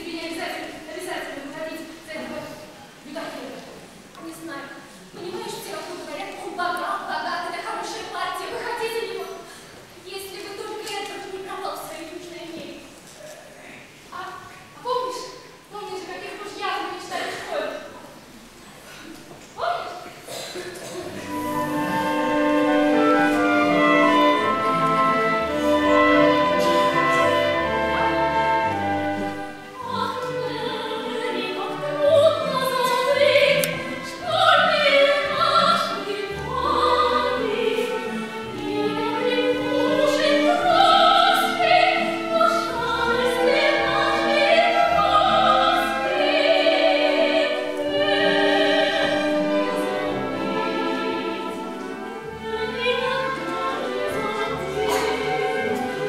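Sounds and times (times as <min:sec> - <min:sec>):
orchestra playing: 0:21.0 - 0:56.0
woman singing operatically: 0:22.4 - 0:56.0.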